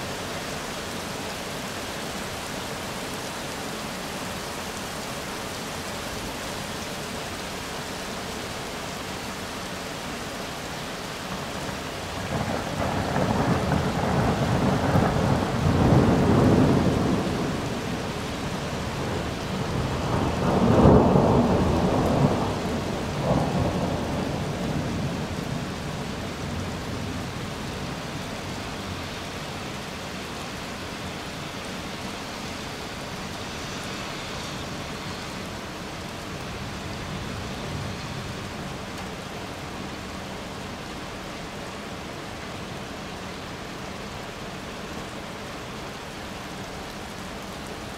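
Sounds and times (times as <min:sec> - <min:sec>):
steady rain: 0:00.0 - 0:47.9
thunder rumbling: 0:12.0 - 0:28.0.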